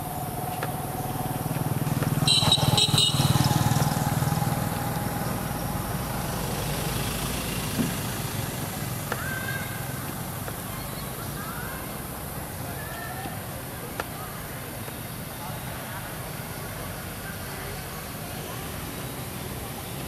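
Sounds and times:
vehicle engine passing by: 0.0s - 11.4s.

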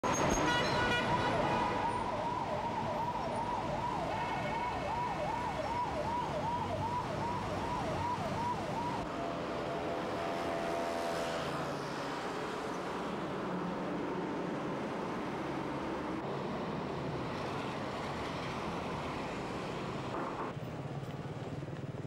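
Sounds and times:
emergency siren: 0.0s - 11.6s
street traffic noise: 0.0s - 22.0s.

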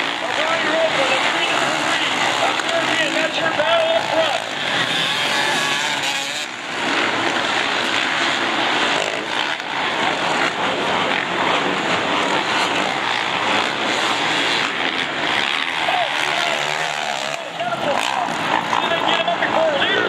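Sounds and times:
motocross bikes racing: 0.0s - 20.0s.

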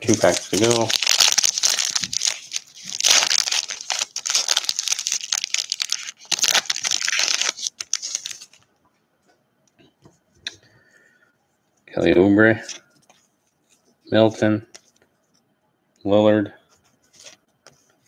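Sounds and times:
wrapper tearing and crinkling: 0.0s - 8.6s.

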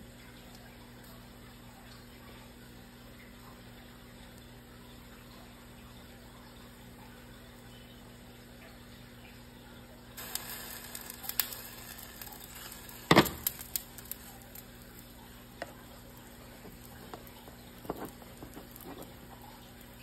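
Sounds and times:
pancake batter sizzling in a pan: 10.2s - 20.0s
pan knocking on glass cooktop: 13.1s - 13.5s.

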